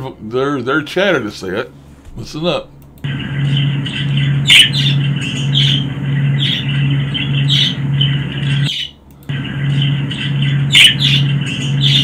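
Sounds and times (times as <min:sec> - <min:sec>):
low pulsing hum: 0:01.6 - 0:12.0
budgerigar chirps and squawks: 0:03.5 - 0:09.0, 0:09.8 - 0:12.0.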